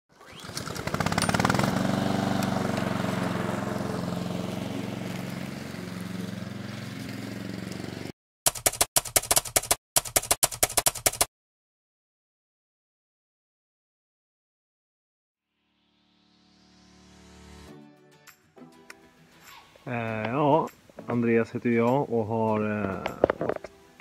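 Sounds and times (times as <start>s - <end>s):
motor running: 0.1s - 8.1s
typewriter key clacks: 8.5s - 11.3s.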